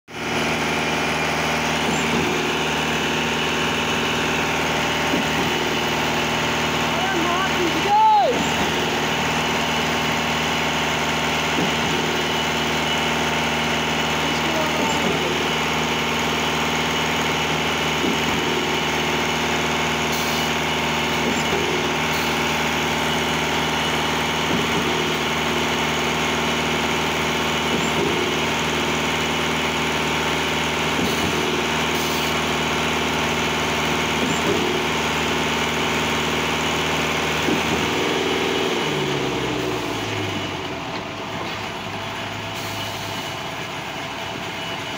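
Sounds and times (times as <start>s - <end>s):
concrete batching plant running: 0.1s - 44.9s
concrete pump running: 0.1s - 44.9s.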